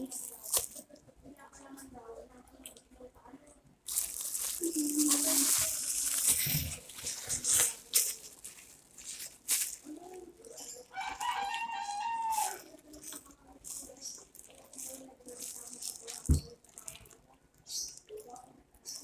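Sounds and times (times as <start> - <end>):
plastic bag crinkling: 0.0 - 0.8, 3.8 - 18.4
long crowing call: 10.9 - 12.6.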